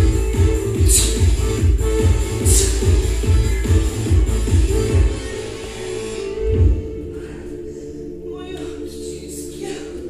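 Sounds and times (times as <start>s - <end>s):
electronic dance music: 0.0s - 7.0s.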